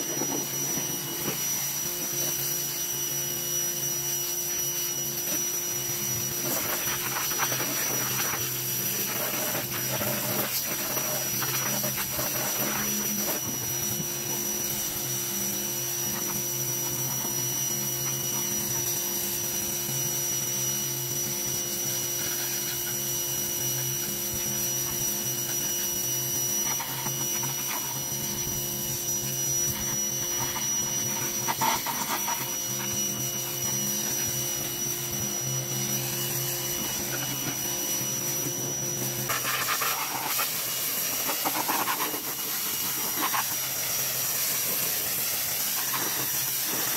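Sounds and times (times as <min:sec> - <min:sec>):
pressure washer motor whine: 0:00.0 - 0:46.9
water jet spraying: 0:06.3 - 0:15.0, 0:29.7 - 0:32.9, 0:39.0 - 0:46.9.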